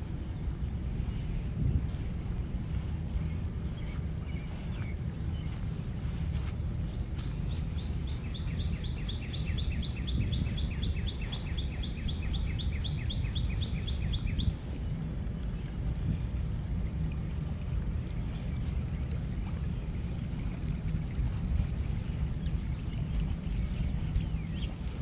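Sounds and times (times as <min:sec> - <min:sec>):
songbird singing: 0:00.0 - 0:25.0
bird chirps: 0:06.9 - 0:14.7.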